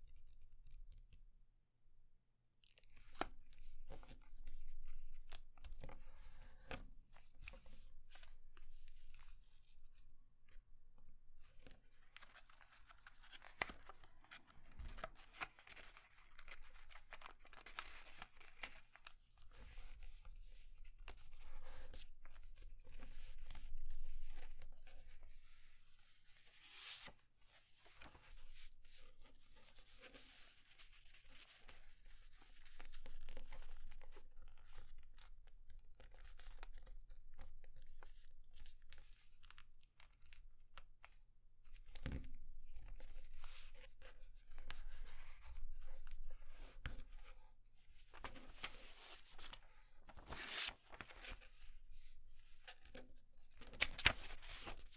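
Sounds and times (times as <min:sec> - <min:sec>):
paper rustling and crinkling: 0:11.4 - 0:35.3, 0:42.0 - 0:54.9
fingers creasing paper folds: 0:48.1 - 0:51.7, 0:53.6 - 0:54.9.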